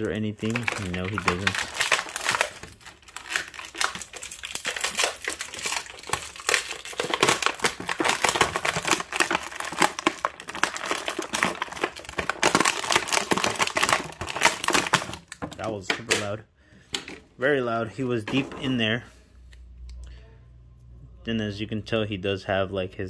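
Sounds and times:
plastic bag crinkling: 0:00.0 - 0:16.2.

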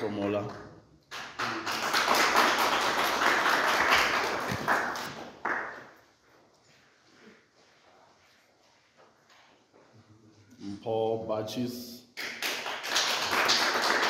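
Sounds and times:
audience applauding: 0:01.1 - 0:06.0, 0:12.2 - 0:14.0.

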